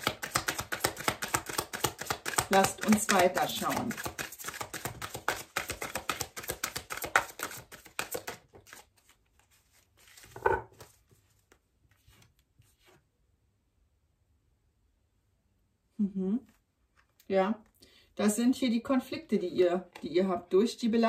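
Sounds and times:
cards thumping on cloth: 0.0s - 8.8s
cards being shuffled: 0.0s - 13.0s.

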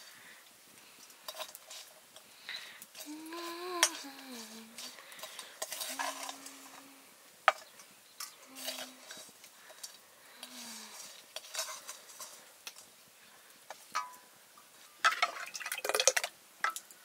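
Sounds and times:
low hums: 3.0s - 5.1s
spoon scraping a metal wok: 4.7s - 6.8s, 7.5s - 12.8s.

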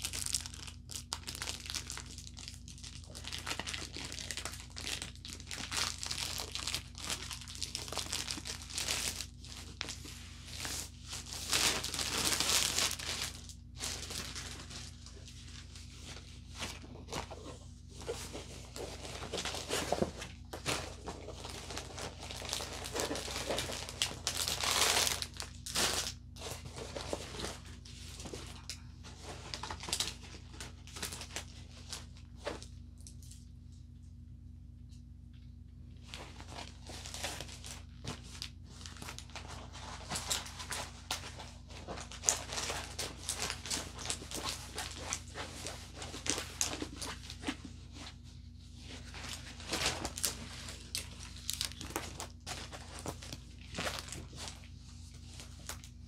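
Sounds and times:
packaging crinkling and rustling: 0.0s - 33.5s, 36.0s - 56.0s.

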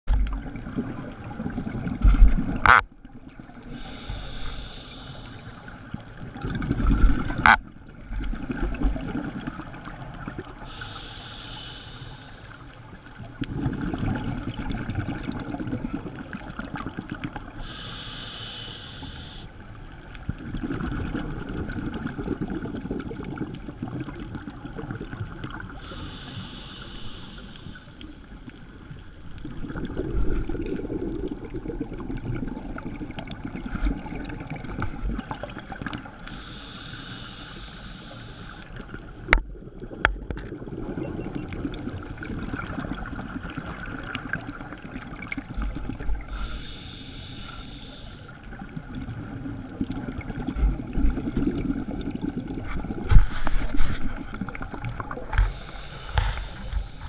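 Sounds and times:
regulator hiss on inhale: 3.6s - 5.8s, 10.6s - 12.7s, 17.6s - 19.6s, 25.7s - 28.2s, 36.2s - 38.9s, 46.2s - 48.4s, 55.3s - 57.0s
bubbling rush of exhaled air: 29.5s - 34.7s.

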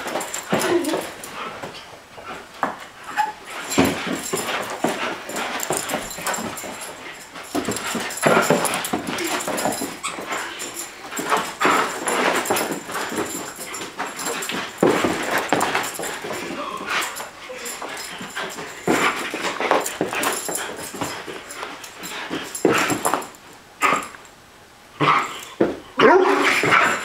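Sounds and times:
dog whining and yipping: 3.1s - 3.4s.

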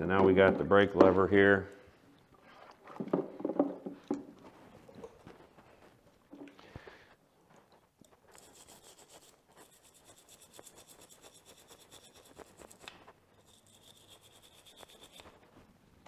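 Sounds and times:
brush scrubbing metal: 8.3s - 15.6s.

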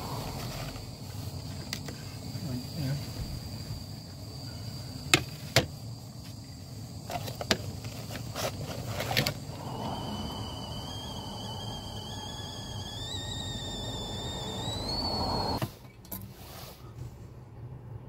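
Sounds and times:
steady low rush: 9.4s - 12.7s.

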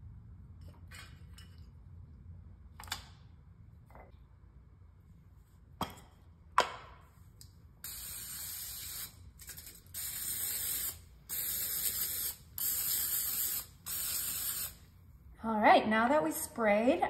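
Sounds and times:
aerosol spray hissing: 10.0s - 14.8s.

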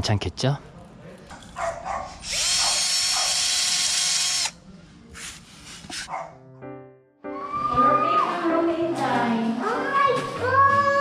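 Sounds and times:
drill motor whine: 2.2s - 4.6s.

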